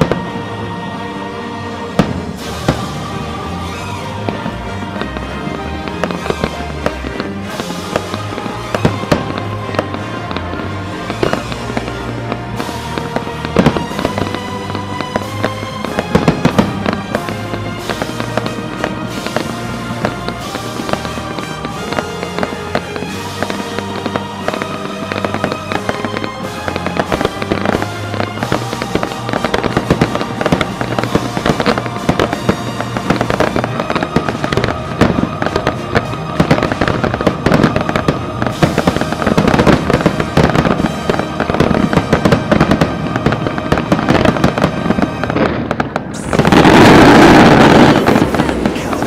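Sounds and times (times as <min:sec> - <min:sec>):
fireworks crackling and banging: 0:00.0 - 0:49.0
music track: 0:00.0 - 0:49.0
dense rush of noise: 0:45.0 - 0:49.0.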